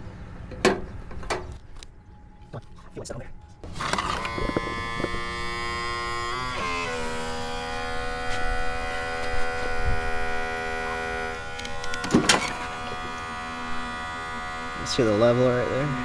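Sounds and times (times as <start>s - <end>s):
electric fuel pump whining: 3.5s - 16.0s.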